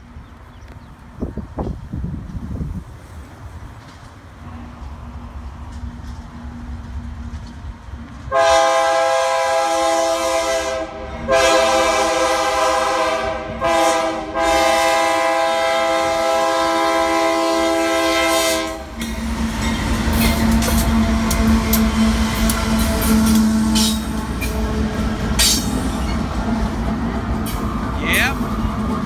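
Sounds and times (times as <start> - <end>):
locomotive engine and wheels rumbling: 0.0 - 29.0
locomotive air horn blasts: 8.3 - 19.6, 20.4 - 25.0.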